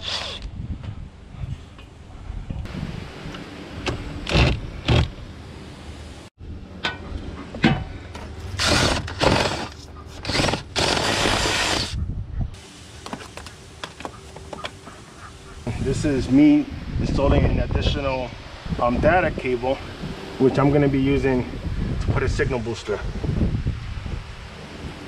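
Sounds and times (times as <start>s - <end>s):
cordless drill boring into wood: 8.6s - 12.0s.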